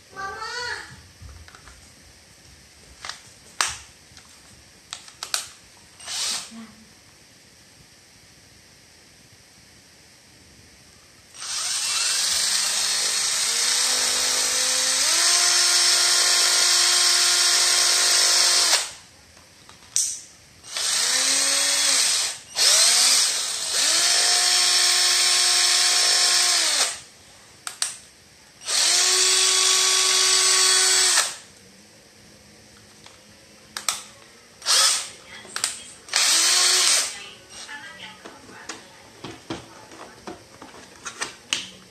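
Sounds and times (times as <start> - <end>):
cordless drill motor whine: 6.0 - 6.5, 11.3 - 19.0, 20.6 - 27.1, 28.6 - 31.5, 34.6 - 35.1, 36.1 - 37.7.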